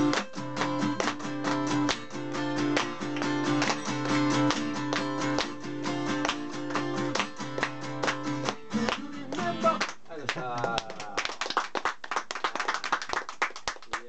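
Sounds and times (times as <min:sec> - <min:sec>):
acoustic guitar strumming: 0:00.0 - 0:10.0
audience handclaps: 0:00.0 - 0:14.0.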